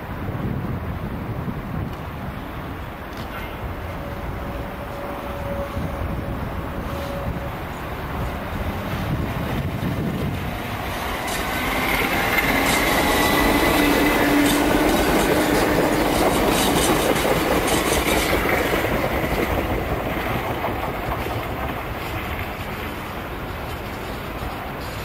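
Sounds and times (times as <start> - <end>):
rail and wheel noise: 0.0 - 25.0
train traction motors whining: 4.1 - 19.7.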